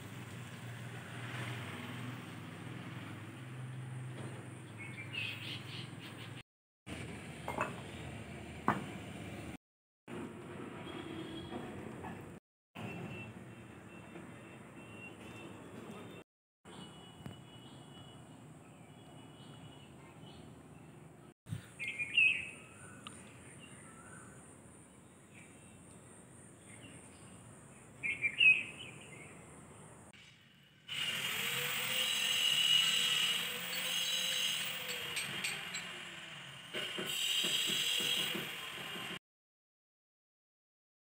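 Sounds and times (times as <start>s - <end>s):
bird chirps: 21.5s - 24.4s, 28.0s - 29.4s
electric power tool running: 30.8s - 36.8s.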